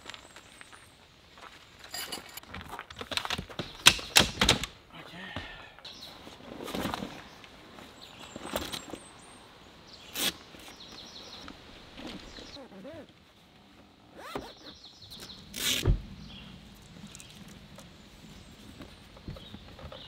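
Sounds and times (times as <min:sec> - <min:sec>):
zipper runs: 0:14.1 - 0:14.8.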